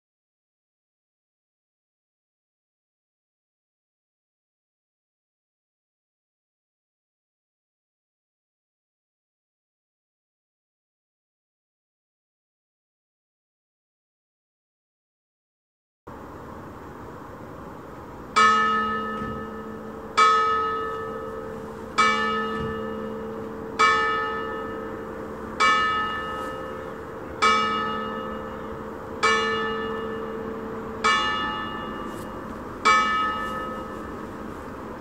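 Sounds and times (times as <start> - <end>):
low background noise: 16.1 - 35.0
church bell ringing: 18.3 - 35.0.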